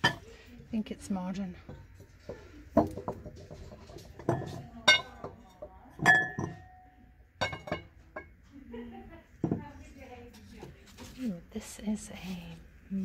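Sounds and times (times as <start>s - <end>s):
glass bowl clinking: 1.7s - 8.3s.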